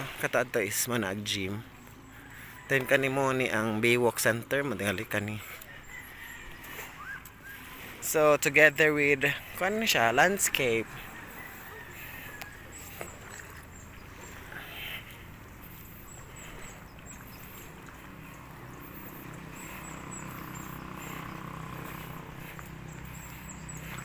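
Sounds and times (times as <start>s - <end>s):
steady low hum: 5.4s - 24.0s.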